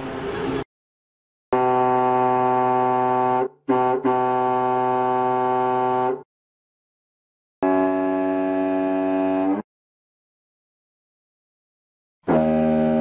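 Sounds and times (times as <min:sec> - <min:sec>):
ship's horn blasts: 0:01.5 - 0:06.3, 0:07.6 - 0:09.6, 0:12.2 - 0:13.0.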